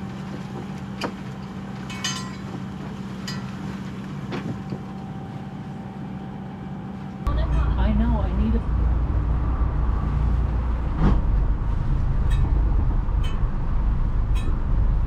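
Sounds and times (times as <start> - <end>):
diesel engine droning: 0.0 - 15.0
metallic rattle: 12.1 - 15.0.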